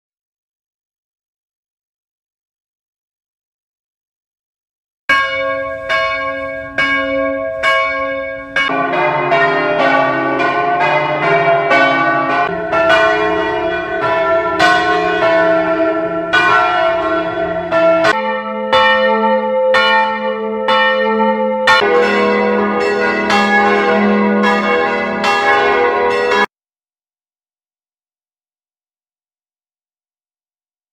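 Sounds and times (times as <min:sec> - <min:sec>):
church bells ringing: 0:05.1 - 0:26.5.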